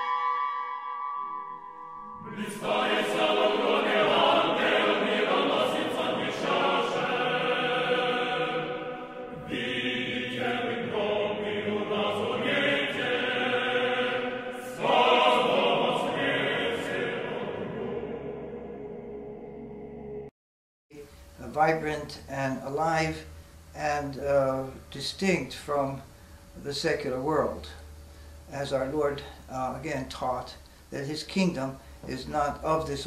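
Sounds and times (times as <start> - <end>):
choir singing: 2.0 - 20.3.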